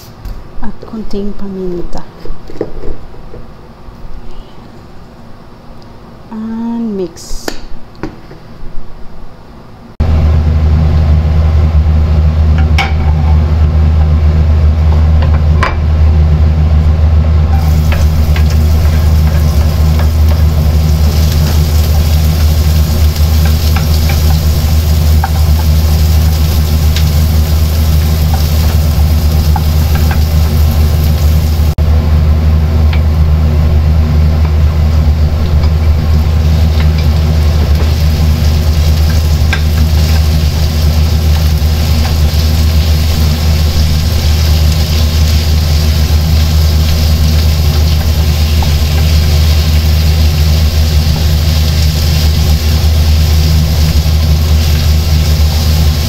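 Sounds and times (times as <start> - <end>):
loud low hum: 8.5 - 56.0
wooden spoon stirring: 17.5 - 31.7
meat frying and sizzling: 17.5 - 31.8, 33.9 - 56.0.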